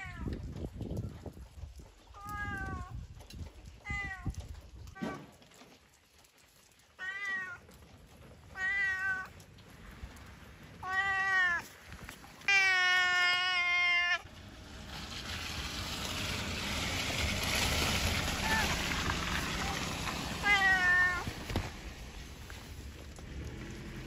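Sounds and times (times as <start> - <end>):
rustling noise: 0.1 - 24.0
cat meowing: 2.2 - 2.9, 7.0 - 7.6, 8.5 - 9.4, 10.8 - 11.8, 12.4 - 14.3, 19.5 - 21.4.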